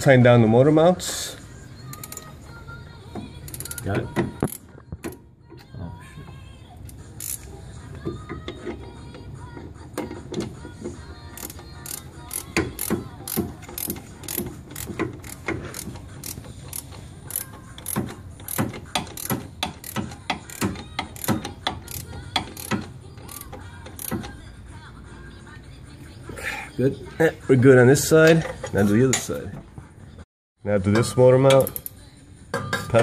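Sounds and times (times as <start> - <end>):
ratchet wrench clicking: 1.9 - 2.3, 3.5 - 4.6, 6.9 - 7.5, 11.4 - 24.4, 31.5 - 32.0.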